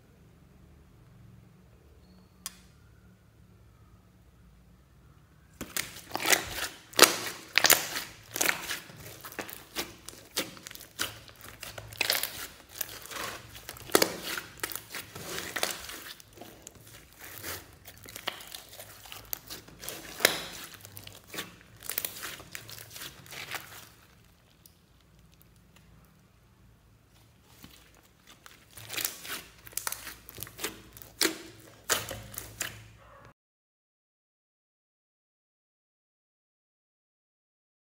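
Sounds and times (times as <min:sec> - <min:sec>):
slime clicking and popping: 0:05.6 - 0:25.9, 0:27.5 - 0:32.8.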